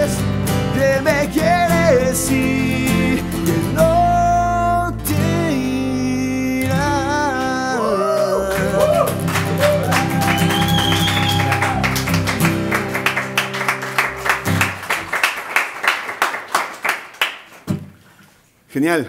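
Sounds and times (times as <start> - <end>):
acoustic guitars strumming: 0.0 - 15.8
people clapping: 7.9 - 18.0.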